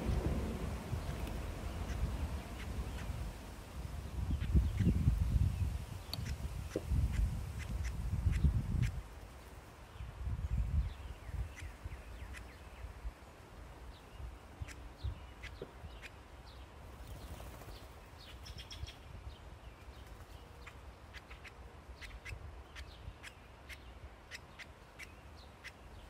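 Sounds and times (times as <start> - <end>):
woodpecker tapping on wood: 6.0 - 7.7.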